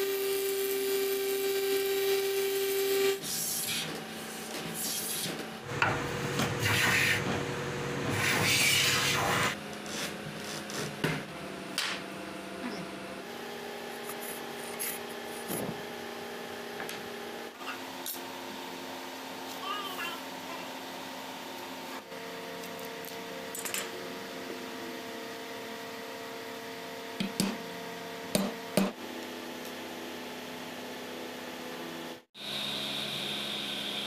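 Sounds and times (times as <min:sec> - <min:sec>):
machine hum: 0:05.5 - 0:19.4.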